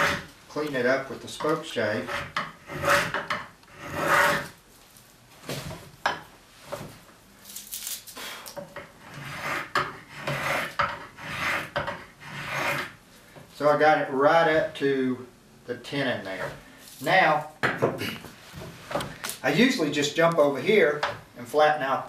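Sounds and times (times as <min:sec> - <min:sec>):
spokeshave shaving wood: 0:09.1 - 0:12.9.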